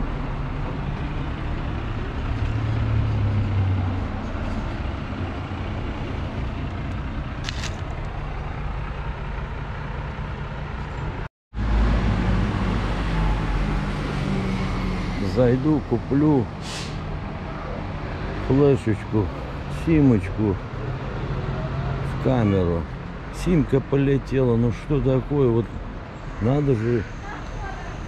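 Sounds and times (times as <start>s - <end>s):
passing cars: 0.0s - 28.0s.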